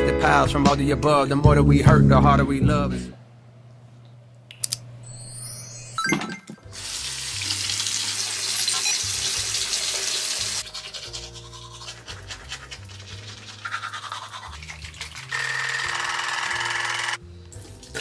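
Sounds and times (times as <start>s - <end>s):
background music: 0.0s - 3.1s, 5.5s - 18.0s
tap water running into sink: 6.8s - 10.6s
rapid scrubbing at sink: 10.6s - 15.3s.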